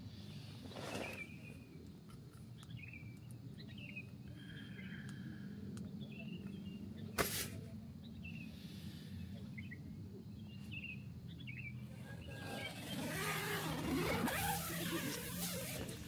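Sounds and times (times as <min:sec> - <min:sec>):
steady low hum: 0:00.0 - 0:16.0
rustling: 0:12.0 - 0:16.0.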